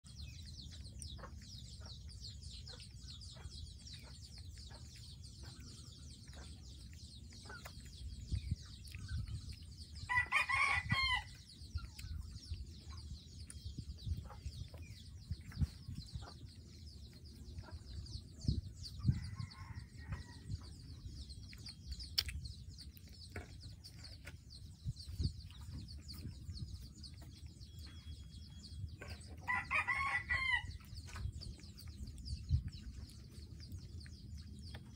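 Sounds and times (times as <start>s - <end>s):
rooster crowing: 29.5s - 30.7s.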